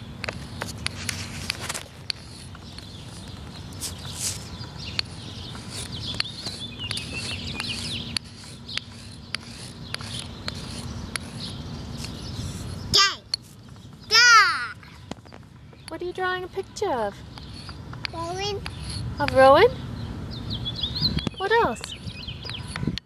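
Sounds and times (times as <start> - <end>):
chalk tapping on pavement: 0.2 - 19.8
chalk scraping on concrete: 0.5 - 13.6, 16.5 - 19.6.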